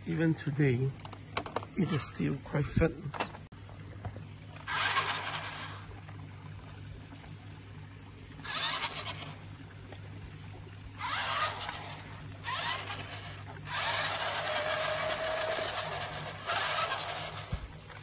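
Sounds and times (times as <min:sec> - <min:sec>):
toy car motors whirring: 0:04.6 - 0:05.9, 0:08.4 - 0:09.4, 0:11.0 - 0:18.0.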